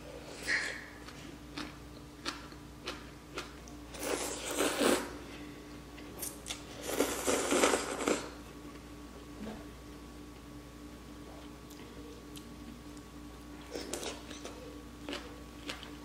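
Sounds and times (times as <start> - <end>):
noodles being slurped: 6.2 - 8.3.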